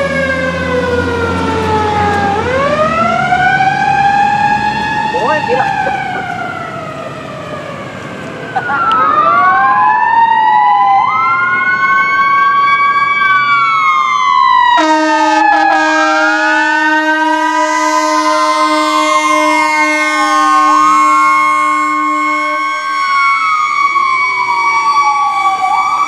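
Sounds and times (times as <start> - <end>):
fire truck sirens wailing: 0.0 - 26.0
horn blast: 14.8 - 22.7.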